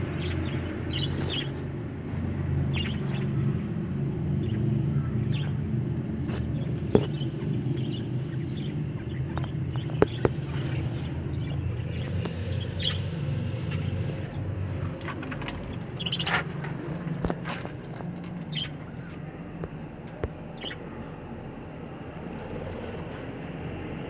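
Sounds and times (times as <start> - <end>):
steady low rumble: 0.0 - 24.0
budgerigars chirping: 2.7 - 3.2, 6.6 - 14.4, 15.7 - 17.1, 18.5 - 18.8.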